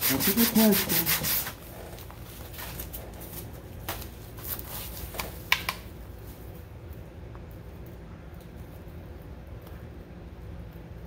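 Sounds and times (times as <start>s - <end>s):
sanding on sandpaper: 0.0s - 1.6s
low steady hum: 0.0s - 11.0s.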